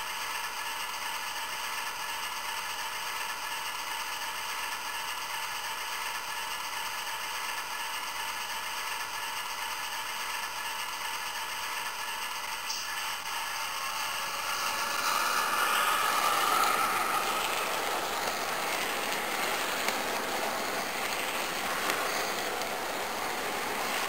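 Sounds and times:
model train wheels on rails: 0.0s - 24.0s.

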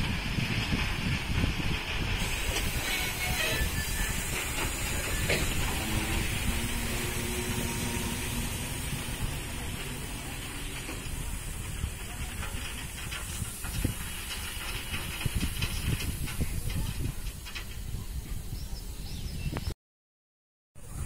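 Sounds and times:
train wagons rolling: 0.0s - 19.4s
ballast rushing hiss: 0.1s - 17.4s
sharp clicks and knocks: 8.6s - 17.9s.

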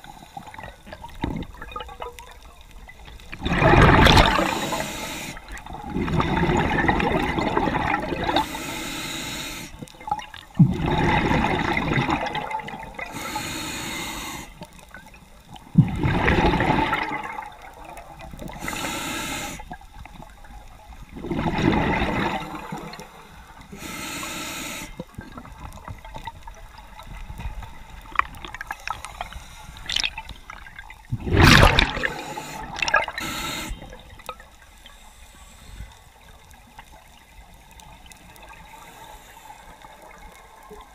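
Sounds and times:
bubbling exhaled air: 3.3s - 9.8s, 10.6s - 14.6s, 15.8s - 17.6s, 18.4s - 19.7s, 21.1s - 25.5s, 28.2s - 34.2s
regulator hissing inhale: 4.3s - 5.6s, 8.3s - 9.8s, 13.0s - 14.8s, 18.5s - 19.8s, 22.4s - 25.1s, 28.8s - 30.0s, 31.9s - 34.2s, 34.8s - 36.2s, 38.6s - 40.2s.

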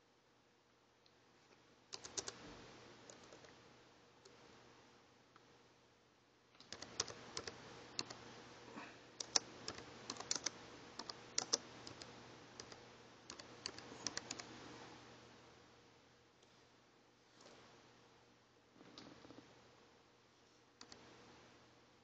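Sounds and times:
computer keyboard typing: 1.9s - 2.4s, 3.1s - 3.6s, 6.6s - 8.2s, 9.2s - 14.5s, 20.8s - 21.0s.

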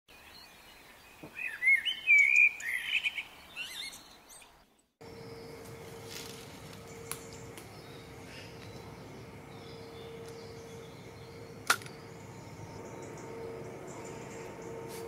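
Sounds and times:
songbird chirping and warbling: 0.1s - 15.0s
constant low hum: 5.0s - 15.0s.

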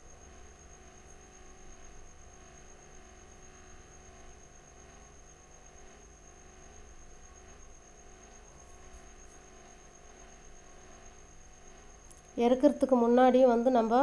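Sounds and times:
electrical hum and hiss: 0.0s - 14.0s.

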